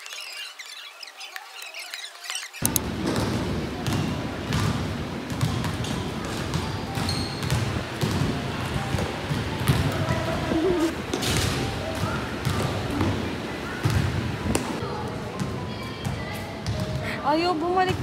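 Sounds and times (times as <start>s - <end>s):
background chatter: 7.7s - 18.0s.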